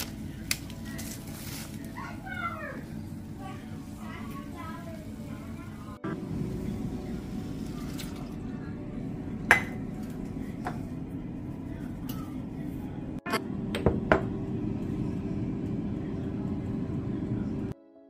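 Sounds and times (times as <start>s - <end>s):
steady low hum: 0.0s - 17.8s
kitchenware clinking: 9.5s - 10.8s.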